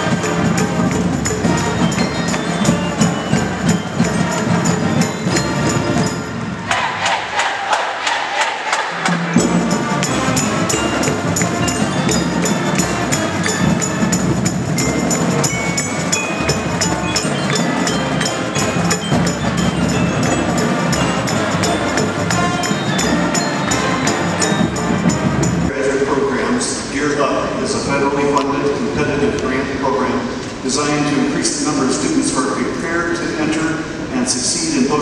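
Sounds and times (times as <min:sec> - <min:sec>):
marching bass drums: 0:00.0 - 0:06.9, 0:08.9 - 0:25.8
brass band playing: 0:00.0 - 0:26.4.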